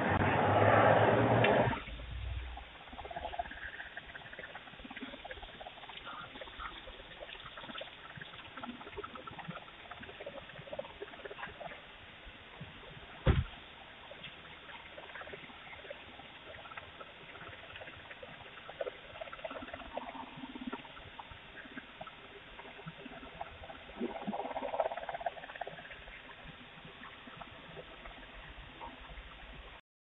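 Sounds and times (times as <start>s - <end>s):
microphone hiss: 11.9s - 14.8s
small clicks and rustles: 12.5s - 29.8s.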